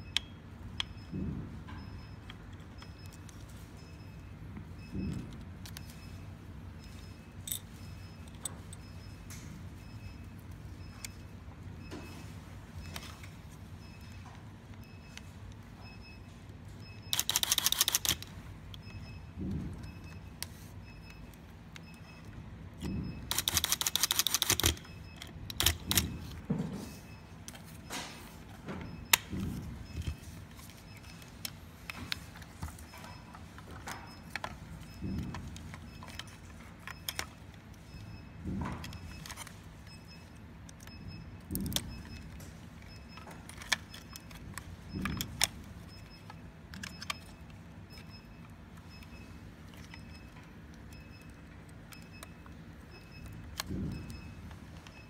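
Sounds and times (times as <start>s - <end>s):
tool and plastic parts clicking: 17.1s - 18.9s, 22.8s - 26.4s, 29.1s - 37.7s, 43.1s - 48.1s.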